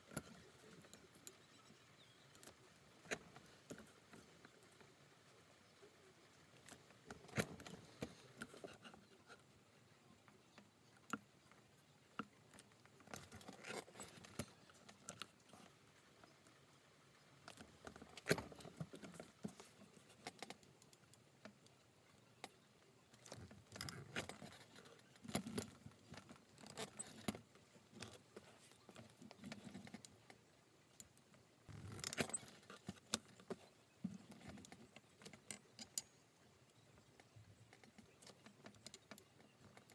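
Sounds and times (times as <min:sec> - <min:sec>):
leather strap rustling: 0:12.2 - 0:15.7, 0:23.1 - 0:30.3, 0:31.7 - 0:35.9.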